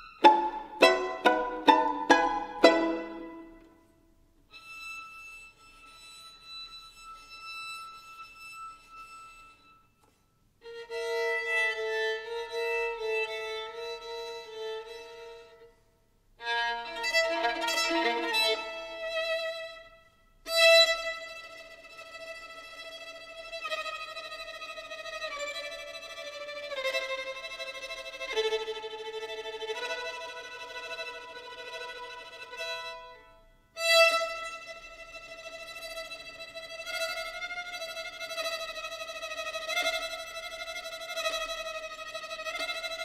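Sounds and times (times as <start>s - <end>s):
solo violin: 0.0s - 43.0s.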